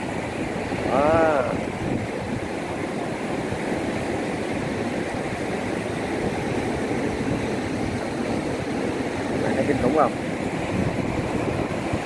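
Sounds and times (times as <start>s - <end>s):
turbulent water rushing through sluice: 0.0s - 12.0s.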